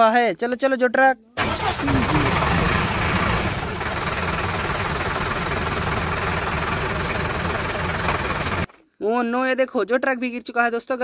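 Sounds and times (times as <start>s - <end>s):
truck engine rumbling: 1.4s - 8.7s.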